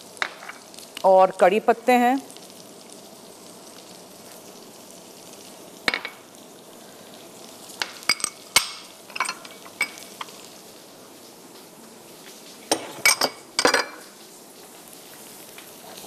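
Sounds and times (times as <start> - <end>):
onions sizzling in oil: 0.0 - 16.0
utensils clinking on glass bowls: 8.1 - 10.4, 12.7 - 14.0.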